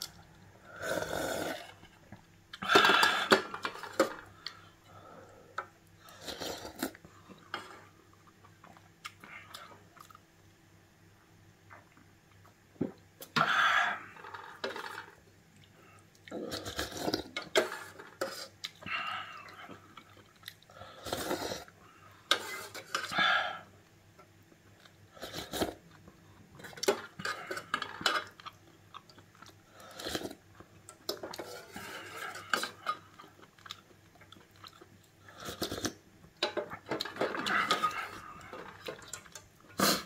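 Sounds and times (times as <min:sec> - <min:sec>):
slurping broth: 0:00.6 - 0:01.9, 0:06.1 - 0:07.0, 0:20.9 - 0:23.1, 0:29.8 - 0:30.4, 0:35.3 - 0:36.0, 0:37.1 - 0:40.0
chewing: 0:18.6 - 0:20.8, 0:31.2 - 0:36.0.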